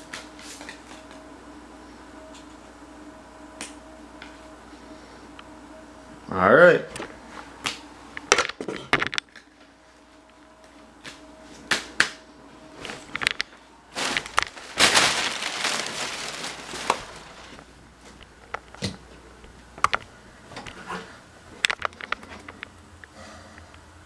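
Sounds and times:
rustling: 13.9 - 17.7.

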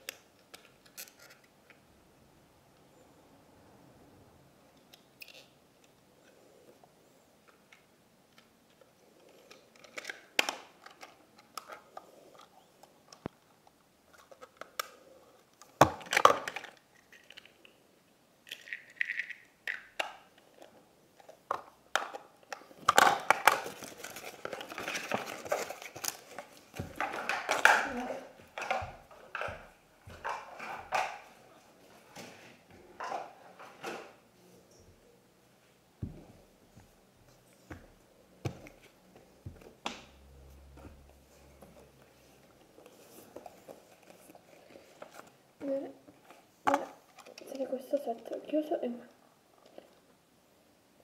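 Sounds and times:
plastic toy pieces clicking: 8.4 - 13.3, 18.4 - 20.7.

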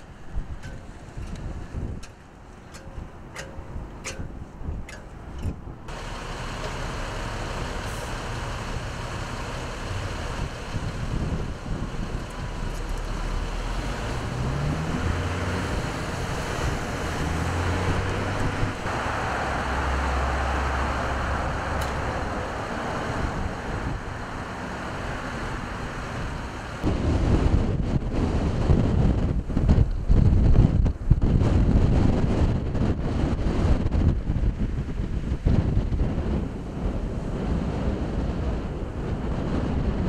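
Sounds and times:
heavy vehicle engine changing gear: 0.0 - 27.4
vehicles passing: 0.0 - 40.0
wind buffeting microphone: 0.0 - 40.0.

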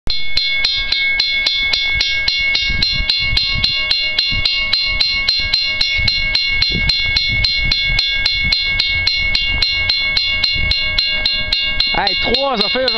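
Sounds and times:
crossing warning bell ringing: 0.1 - 12.9
low rumble: 0.1 - 12.9.

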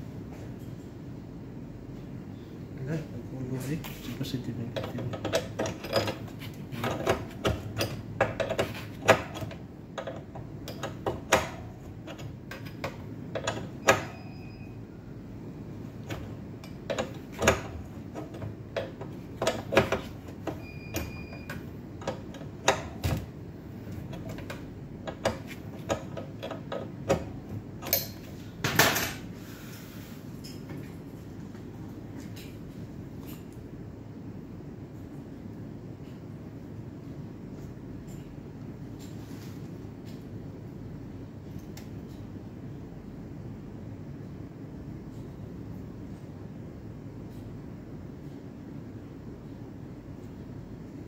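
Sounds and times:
spanner clinking against metal fittings: 27.8 - 28.3.

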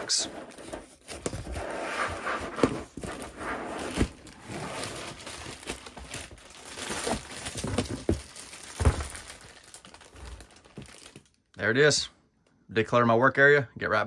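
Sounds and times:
cardboard rustling: 0.0 - 11.2
plastic bag crinkling: 4.1 - 11.4.

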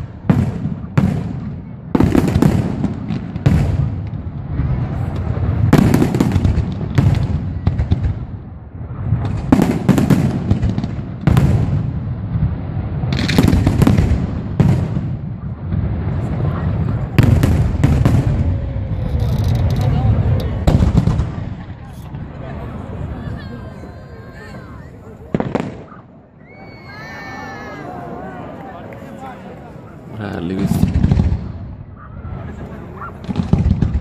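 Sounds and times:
fireworks bursting with sharp bangs: 0.0 - 27.9, 30.0 - 34.0
continuous low rumble: 15.4 - 25.3.

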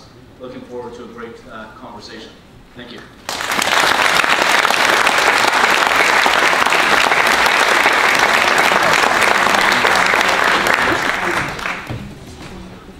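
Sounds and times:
audience applause: 3.3 - 12.1.

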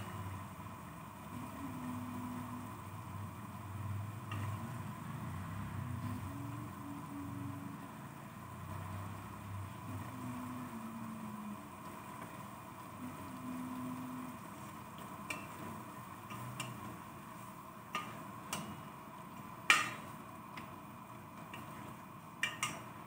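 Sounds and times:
steady hum: 0.0 - 23.0
ladle stirring in pot: 14.4 - 23.0.

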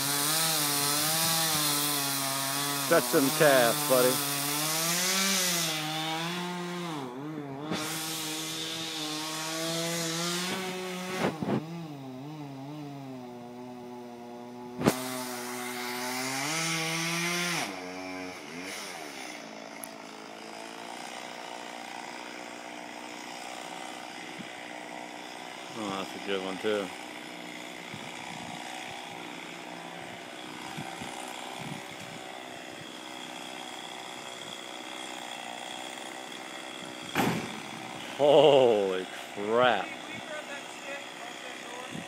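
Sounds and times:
chainsaw cutting: 0.0 - 42.0
sharp knocks: 37.1 - 37.6.

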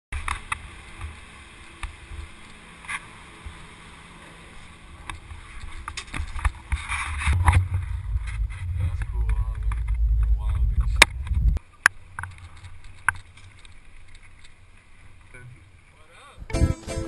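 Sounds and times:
low rumble: 4.8 - 13.5
wind on microphone: 5.7 - 11.6.

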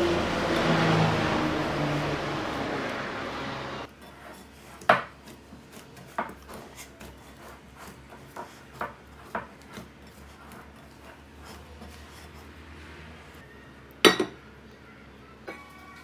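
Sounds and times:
hand kneading dough: 3.9 - 13.4.

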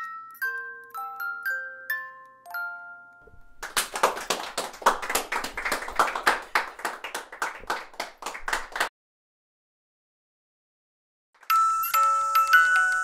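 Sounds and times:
chiming melody: 0.0 - 3.5, 11.5 - 13.0
audience applause: 3.3 - 8.9.

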